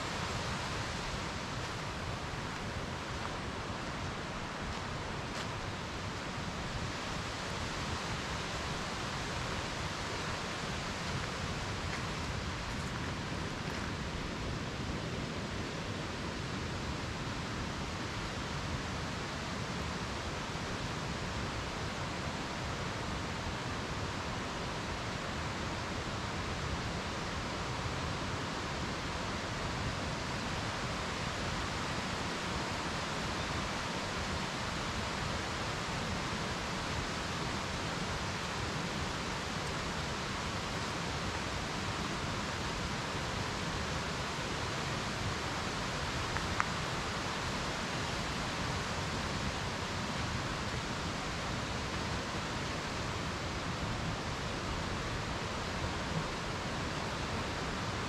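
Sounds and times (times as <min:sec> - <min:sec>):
mountain stream rushing: 0:00.0 - 0:58.0.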